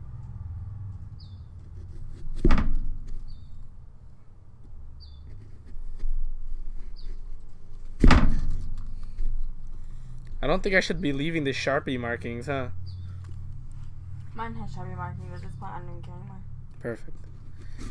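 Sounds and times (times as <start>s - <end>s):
loud knocks carving pumpkin: 8.0s - 8.6s.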